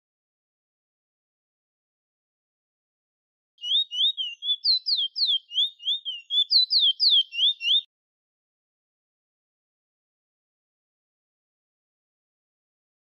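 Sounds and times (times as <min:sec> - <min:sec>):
finch whistled song: 0:03.6 - 0:07.9.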